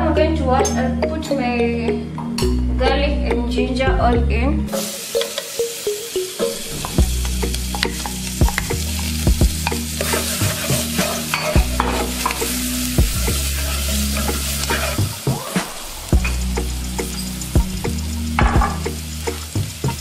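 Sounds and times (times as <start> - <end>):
garlic sizzling in a pot: 4.7 - 20.0
wooden spoon scraping a pot: 9.6 - 12.6, 13.3 - 15.0.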